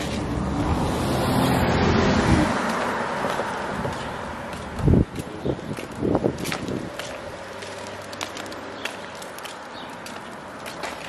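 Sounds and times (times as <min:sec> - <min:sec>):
car passing: 0:00.0 - 0:11.0.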